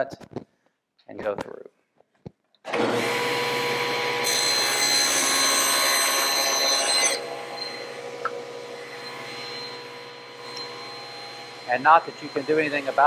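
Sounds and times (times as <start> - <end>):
saw cutting plywood: 2.7 - 13.0
table saw motor humming: 2.7 - 13.0.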